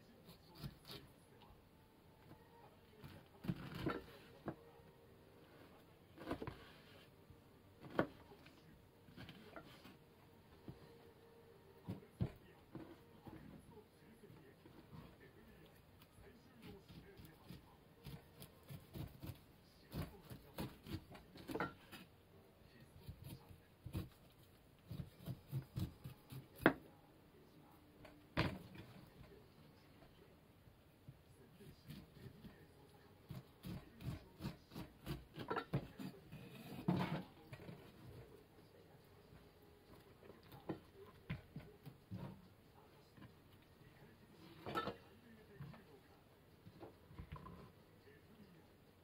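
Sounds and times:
knife cutting pineapple on board: 0:00.2 - 0:01.1, 0:03.0 - 0:04.5, 0:16.6 - 0:22.1, 0:23.0 - 0:26.8, 0:31.6 - 0:32.6, 0:33.2 - 0:38.0.

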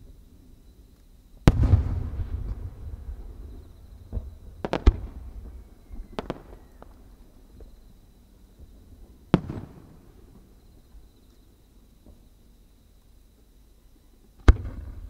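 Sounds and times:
fireworks bangs with echo: 0:01.4 - 0:07.8, 0:08.5 - 0:10.3, 0:14.4 - 0:15.0.

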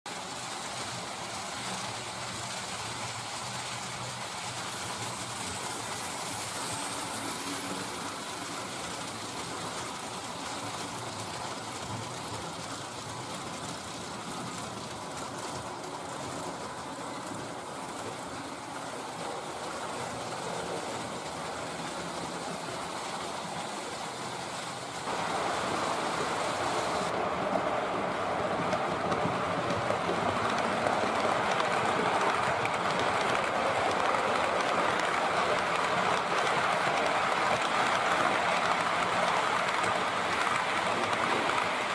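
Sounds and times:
model train wheels on rails: 0:00.1 - 0:41.9.

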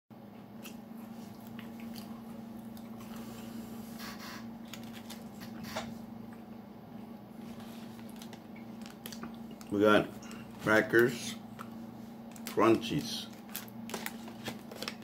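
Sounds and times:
steady low hum: 0:00.2 - 0:15.0
person chewing food: 0:00.6 - 0:03.6, 0:07.5 - 0:10.6.

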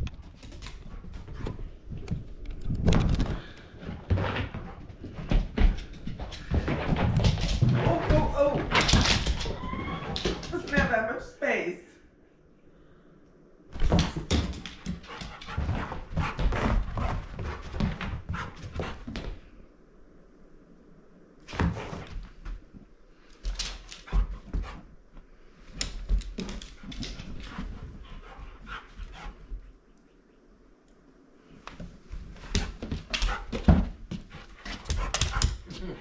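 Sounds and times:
thumps and clicks on floor: 0:00.0 - 0:11.0, 0:13.8 - 0:19.4, 0:25.7 - 0:28.0, 0:31.6 - 0:35.7.

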